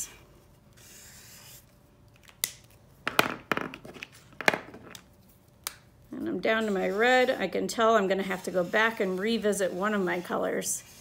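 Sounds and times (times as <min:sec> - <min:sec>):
marker rubbing on paper: 0:00.8 - 0:01.6, 0:06.5 - 0:11.0.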